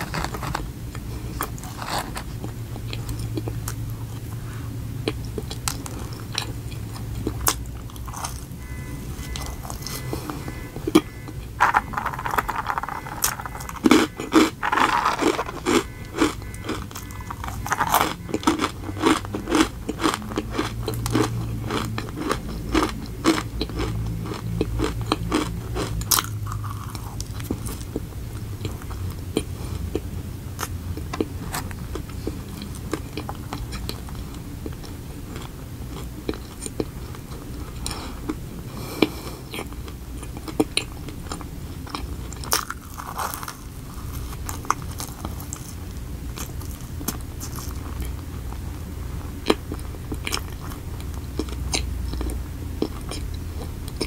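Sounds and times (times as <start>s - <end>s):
close chewing with mouth clicks: 0.0s - 54.0s.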